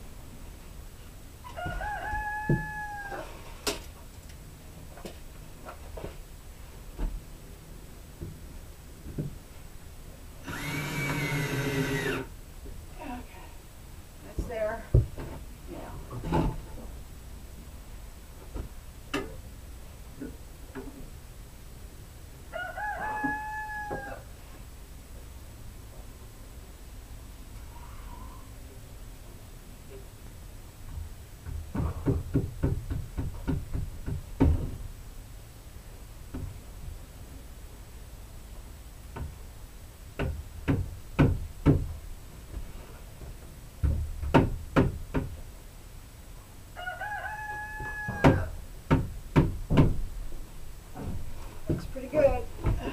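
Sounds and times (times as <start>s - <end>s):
rooster crowing: 1.5s - 3.4s, 22.5s - 24.3s, 46.8s - 48.6s
board knocking on wooden wall: 31.5s - 34.8s, 40.2s - 41.9s, 43.8s - 45.4s, 48.1s - 50.0s.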